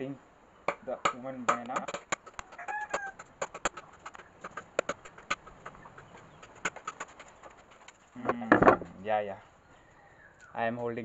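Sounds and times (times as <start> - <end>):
machete chopping coconut: 0.7 - 5.2.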